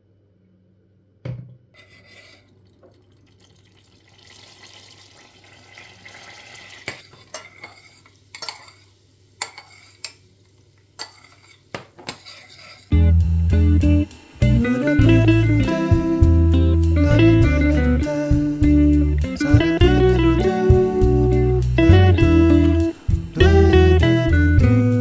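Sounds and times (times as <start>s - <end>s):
soft sizzling hiss: 1.8s - 25.0s
spoon clinking against pan: 6.9s - 8.8s, 9.4s - 10.2s.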